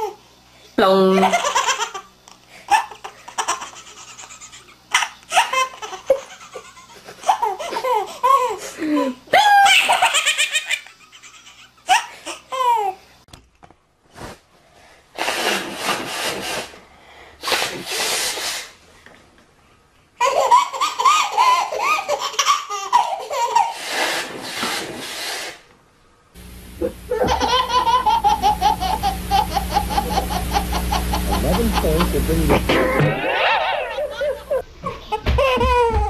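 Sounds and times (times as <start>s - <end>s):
babies laughing: 1.2s - 2.1s, 2.7s - 13.0s, 20.2s - 24.0s, 26.8s - 36.0s
low hum: 26.4s - 35.0s.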